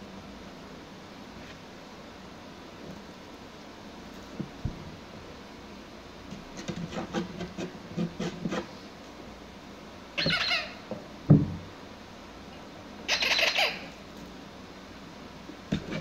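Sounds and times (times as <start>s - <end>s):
rubber squeaky ball squeaking: 10.2s - 10.8s
thump: 11.3s - 11.7s.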